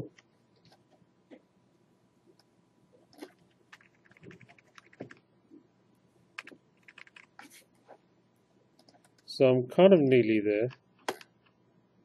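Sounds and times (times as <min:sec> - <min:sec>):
computer keyboard and mouse clicks: 0:03.1 - 0:05.2, 0:06.4 - 0:07.5, 0:08.8 - 0:09.3, 0:10.7 - 0:11.6.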